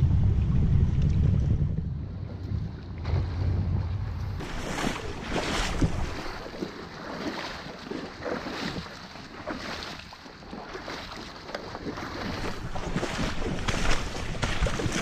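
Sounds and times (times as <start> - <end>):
water sloshing around sled: 0.0 - 15.0
splashing steps in water: 2.4 - 15.0.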